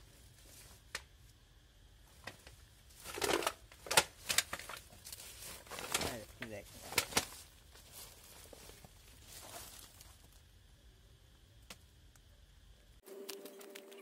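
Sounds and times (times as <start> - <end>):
soft rustles: 4.1 - 10.4.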